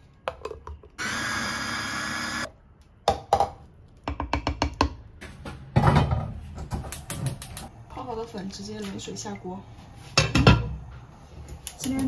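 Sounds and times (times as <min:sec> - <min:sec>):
food chopper motor running: 0:01.0 - 0:02.5.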